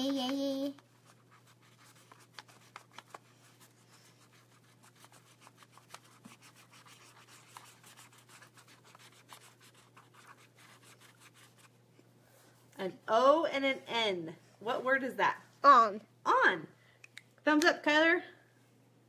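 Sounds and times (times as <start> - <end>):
marker scribbling on paper: 1.0 - 11.7.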